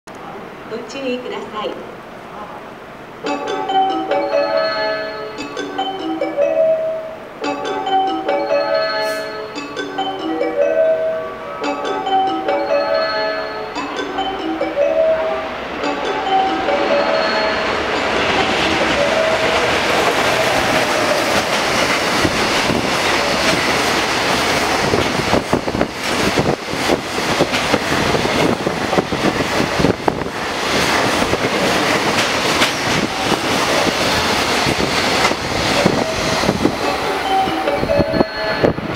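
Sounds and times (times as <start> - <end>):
wheels rumbling on rail: 1.8 - 38.9
wheels clacking over rail joints: 15.8 - 38.3.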